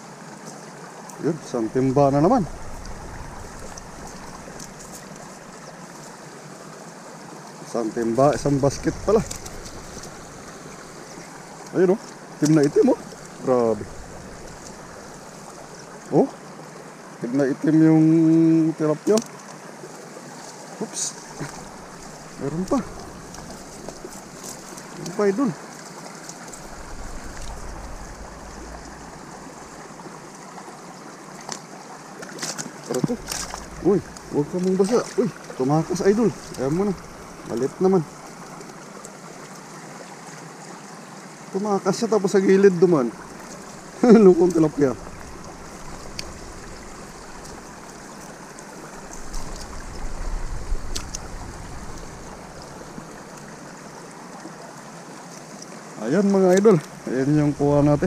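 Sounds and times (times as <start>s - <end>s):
stream running over rocks: 0.0s - 58.0s
low rumble: 1.7s - 4.6s, 8.3s - 10.4s, 26.6s - 30.0s, 33.1s - 34.6s
faint clicks: 44.4s - 46.4s, 50.8s - 51.3s.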